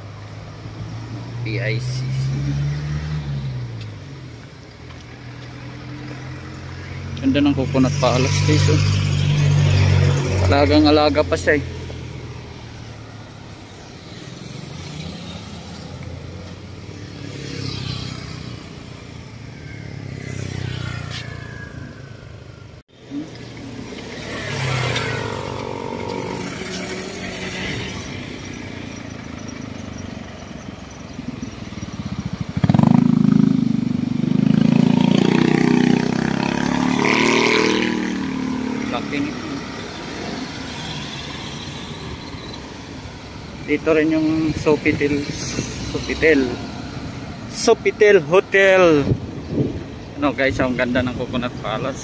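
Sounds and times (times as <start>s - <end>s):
cars driving past: 0.0s - 52.0s
motorcycle driving past: 5.3s - 43.5s.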